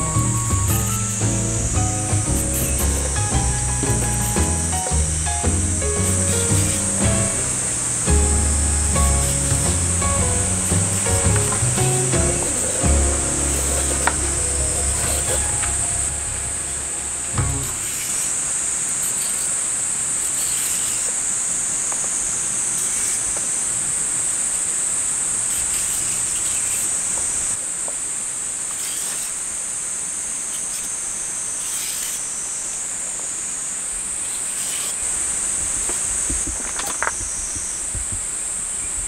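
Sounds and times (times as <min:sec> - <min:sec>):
insect chorus: 0:00.0 - 0:39.0
peeler scraping a carrot: 0:20.2 - 0:21.2, 0:25.5 - 0:27.0, 0:31.6 - 0:32.2, 0:34.4 - 0:35.0.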